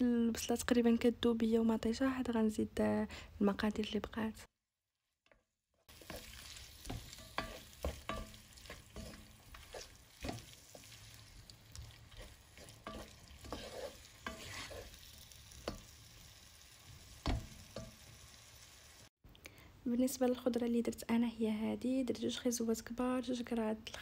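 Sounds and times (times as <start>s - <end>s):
wooden spoon scraping a pot: 5.9s - 15.8s
vegetables sizzling in oil: 5.9s - 19.1s.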